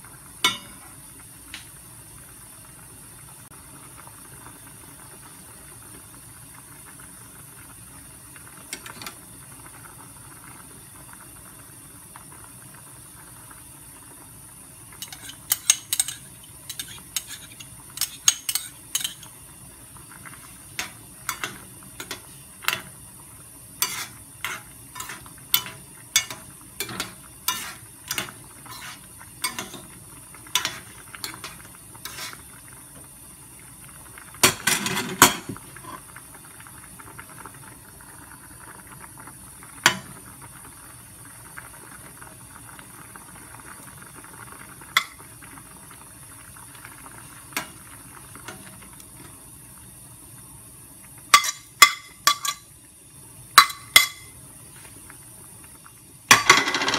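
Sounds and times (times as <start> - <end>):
metal spoon clinking in saucepan: 15.0 - 19.3, 20.8 - 22.2, 23.8 - 29.8, 51.4 - 52.6.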